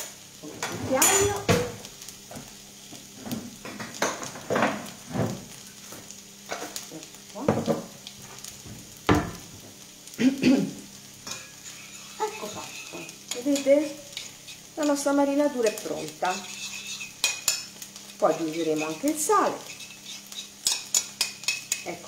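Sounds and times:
faint sizzle in a pan: 0.0s - 22.0s
utensil scraping a ceramic bowl: 11.4s - 13.1s, 16.2s - 17.6s, 18.7s - 21.8s.

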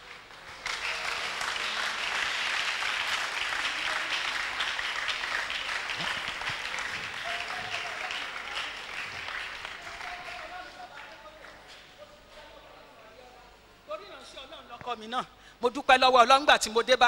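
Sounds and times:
congregation applauding: 0.0s - 12.0s.

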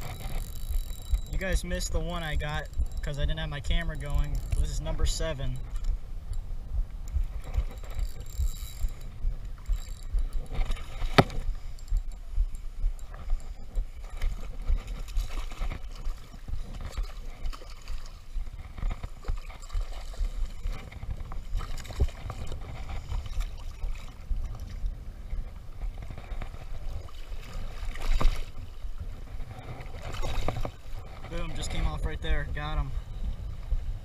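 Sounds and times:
wind on microphone: 0.0s - 34.0s
water sloshing and splashing: 7.0s - 32.8s.

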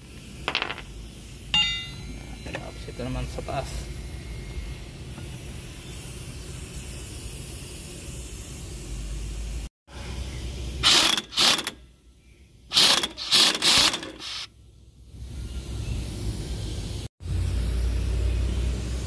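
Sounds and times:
impact wrench hammering: 1.6s - 2.1s.

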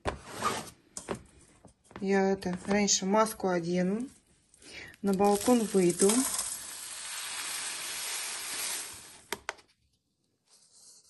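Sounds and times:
granules pouring into sieve: 5.0s - 9.4s.

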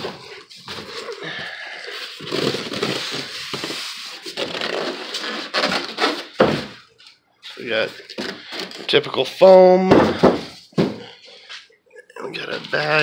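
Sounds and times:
packing foam crunching and rubbing: 0.0s - 6.3s.

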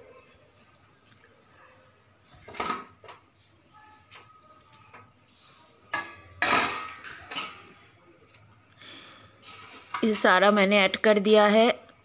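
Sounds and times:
metal utensils clinking on pans: 2.4s - 3.2s, 5.9s - 7.8s.

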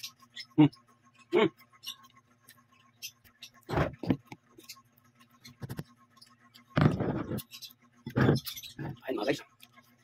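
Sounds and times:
chewing and mouth noises: 8.8s - 10.0s.

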